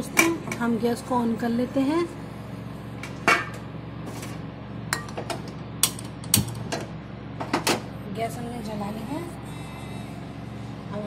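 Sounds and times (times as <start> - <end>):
gas stove igniter clicking: 5.8 - 6.6.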